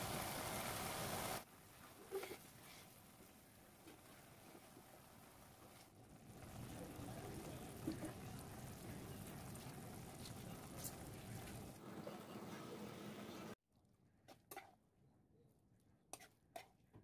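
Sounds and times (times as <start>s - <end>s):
meat sizzling in a frying pan: 0.0s - 1.5s.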